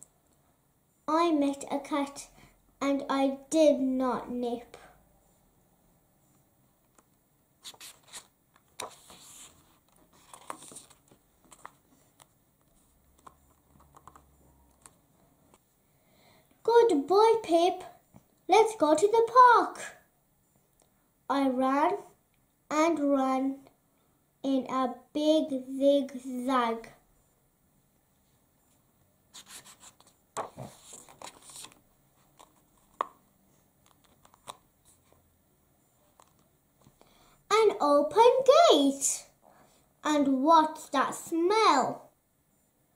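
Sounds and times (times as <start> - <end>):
book pages rustling: 7.6 - 15.6, 29.4 - 35.2, 36.0 - 37.0.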